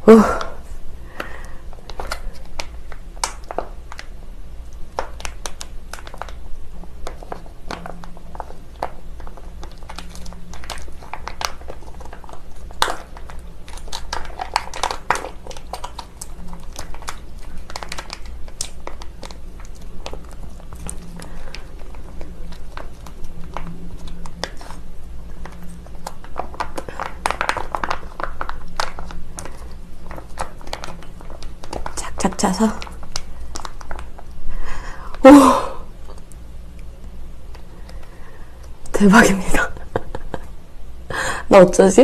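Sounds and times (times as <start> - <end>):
plastic pouch crinkling: 5.0 - 34.6.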